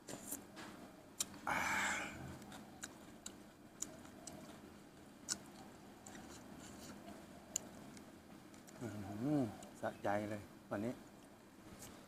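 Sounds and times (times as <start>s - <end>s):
wet mouth clicks and lip smacks: 1.2s - 1.4s, 2.4s - 4.5s, 5.2s - 6.4s
person chewing: 1.2s - 9.7s
breathy noise: 1.4s - 2.6s.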